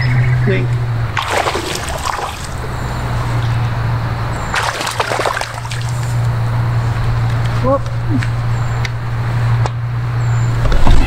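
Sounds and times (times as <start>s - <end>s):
fish splashing at water surface: 1.1s - 3.4s, 4.4s - 6.4s.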